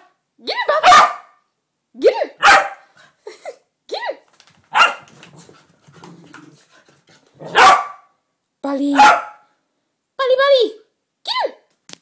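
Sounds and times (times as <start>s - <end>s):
small dogs barking and yipping: 0.7s - 1.4s, 2.4s - 2.9s, 4.7s - 5.2s, 7.4s - 8.1s, 9.0s - 9.4s
dog growling: 5.2s - 7.6s.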